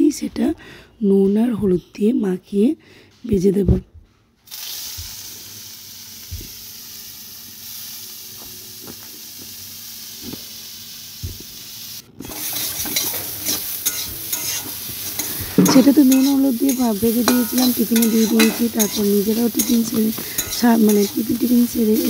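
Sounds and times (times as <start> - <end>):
vegetables sizzling in oil: 4.5 - 22.0
spatula scraping pan: 12.2 - 22.0.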